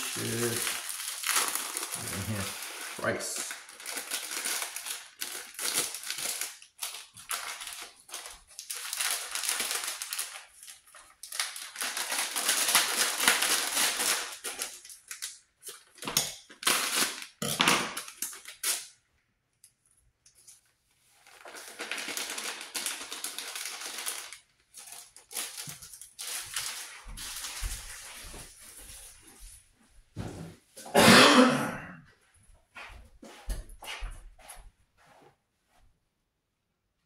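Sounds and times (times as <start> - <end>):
paper packets crinkling and tearing: 0.0 - 19.0, 21.2 - 29.2.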